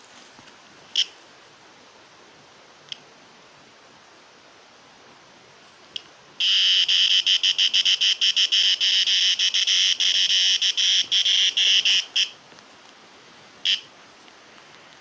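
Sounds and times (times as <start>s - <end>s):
cicada distress buzz: 6.4s - 12.4s, 13.6s - 14.0s.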